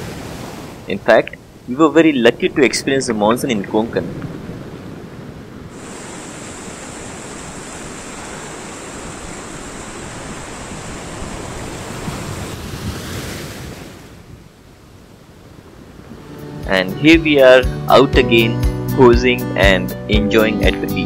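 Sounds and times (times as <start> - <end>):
sea surf washing ashore: 0.0 - 20.9
wind on microphone: 2.4 - 16.4.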